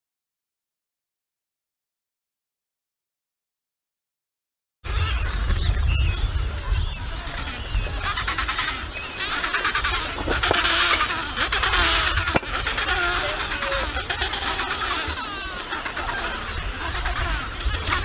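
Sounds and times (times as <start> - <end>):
wind rumbling on microphone: 4.8 - 18.0
penguins squawking and chattering: 4.9 - 18.0.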